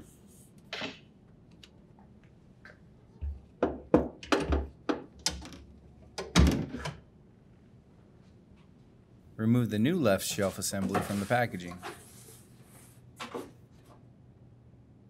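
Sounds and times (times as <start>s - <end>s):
refrigerator shelf knocking and clattering: 3.2s - 5.4s, 6.2s - 7.0s.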